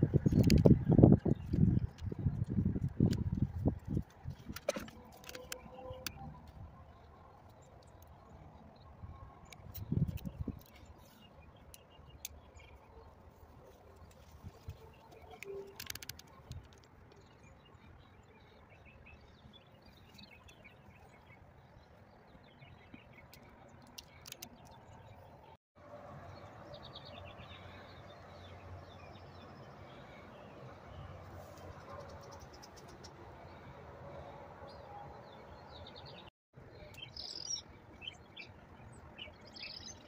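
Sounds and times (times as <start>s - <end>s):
small birds chirping: 0.0s - 25.6s, 26.3s - 40.0s
sharp clicks: 15.2s - 17.2s.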